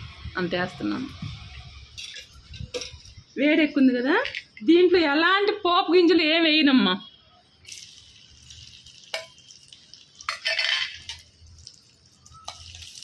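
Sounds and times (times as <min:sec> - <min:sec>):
onions sizzling in hot oil: 0:07.6 - 0:13.0.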